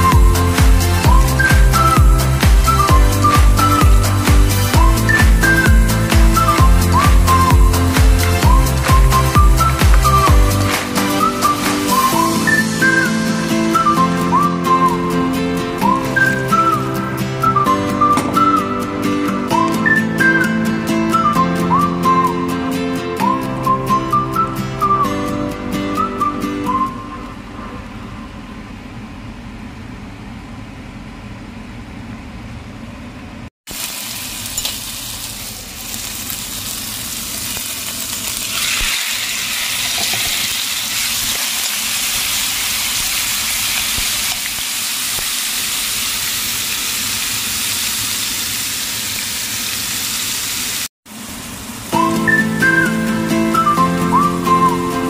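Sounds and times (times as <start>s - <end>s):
chicken sizzling in frying pan: 5.8s - 12.7s, 33.7s - 52.0s.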